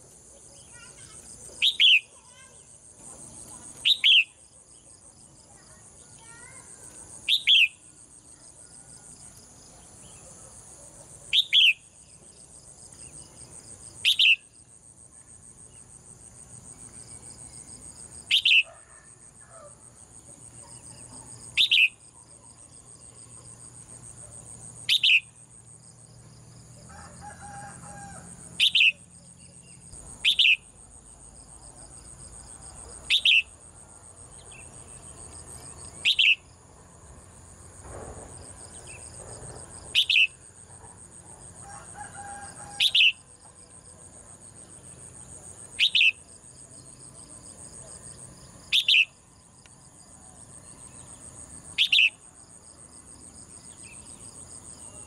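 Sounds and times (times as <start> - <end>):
insects buzzing: 0.0 - 55.0
bird sharp downward call: 21.6 - 22.0, 24.9 - 25.3, 28.6 - 29.0.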